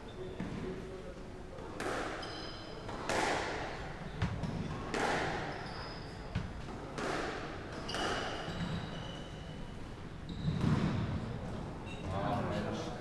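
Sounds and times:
squash ball hitting rackets and walls: 0.3s - 0.9s, 1.6s - 9.2s, 10.3s - 11.5s
shoes squeaking on wooden floor: 5.3s - 6.5s, 7.7s - 9.6s, 10.2s - 11.0s.

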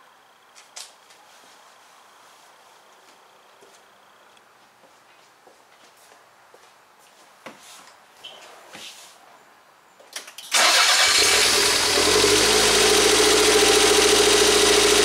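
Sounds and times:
car engine starting and idling: 10.5s - 15.0s.

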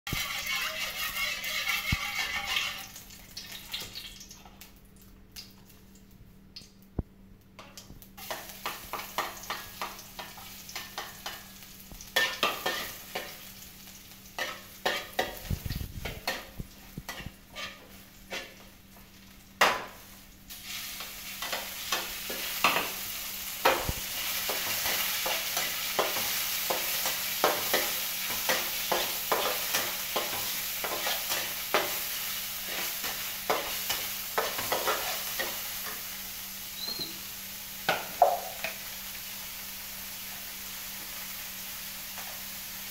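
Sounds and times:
metal spatula scraping wok: 0.1s - 2.9s, 14.4s - 18.7s
food sizzling in a wok: 0.1s - 4.5s, 7.6s - 42.9s.

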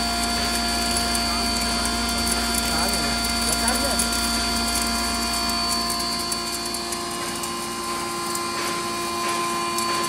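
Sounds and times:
grain grinder humming and grinding: 0.0s - 10.0s.

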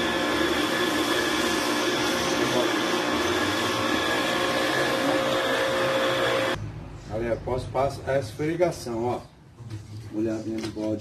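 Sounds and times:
pressure washer whine: 0.0s - 6.6s.

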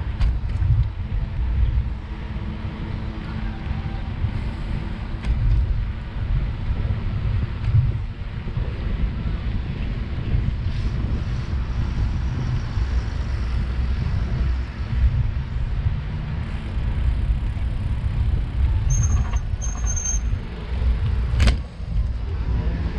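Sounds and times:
bicycle rolling on asphalt: 0.0s - 22.9s
wind buffeting microphone: 0.0s - 22.9s
high-pitched squeaks: 18.9s - 20.4s.

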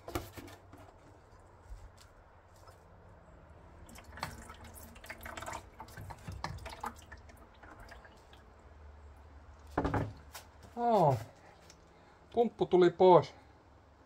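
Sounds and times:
oil dripping into container: 3.8s - 10.3s.

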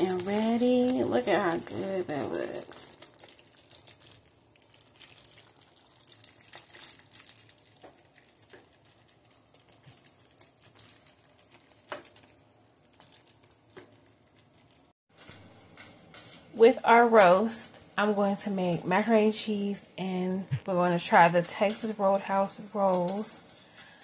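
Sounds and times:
wet squelching: 0.0s - 14.9s
spoon stirring thick stew: 2.2s - 14.8s.

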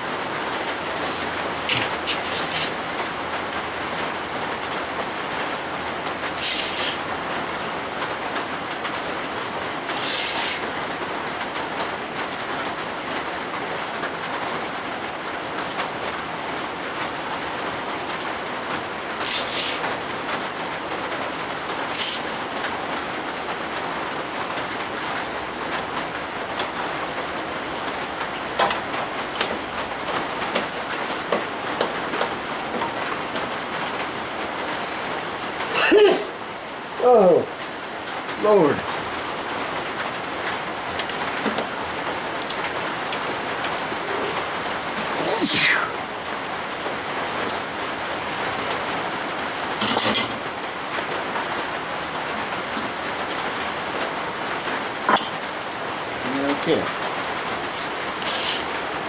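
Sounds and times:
steady rushing hiss: 0.0s - 11.9s, 16.9s - 59.0s
sharp hissing scrapes: 1.0s - 2.8s, 6.4s - 7.0s, 10.0s - 10.6s, 19.2s - 19.8s, 21.9s - 22.4s, 45.2s - 46.0s, 58.2s - 58.7s.

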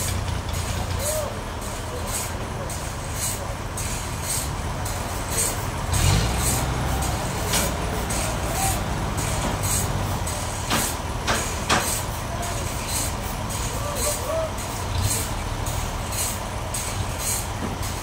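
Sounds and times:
engine running: 0.0s - 18.0s
sharp knocks: 10.7s - 12.0s.

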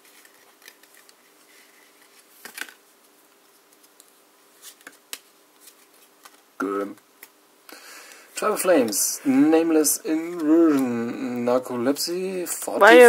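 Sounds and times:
cards snapping: 2.0s - 2.8s, 3.6s - 7.4s.

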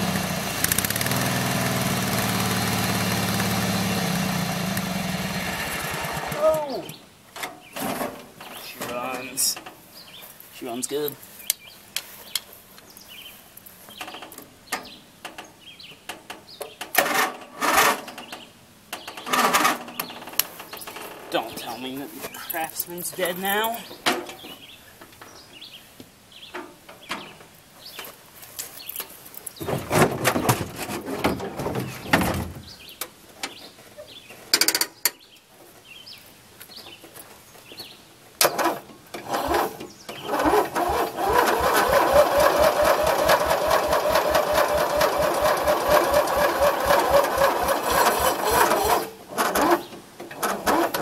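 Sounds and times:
starter motor whine: 0.0s - 6.4s, 38.6s - 49.7s
engine cranking without starting: 0.1s - 4.3s, 38.4s - 51.0s.

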